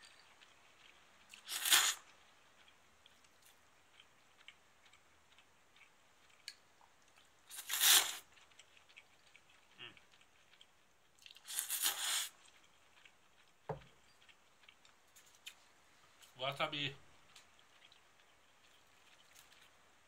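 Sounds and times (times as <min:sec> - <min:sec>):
slurping noodles: 0:01.4 - 0:02.1, 0:07.5 - 0:08.2, 0:11.4 - 0:12.4.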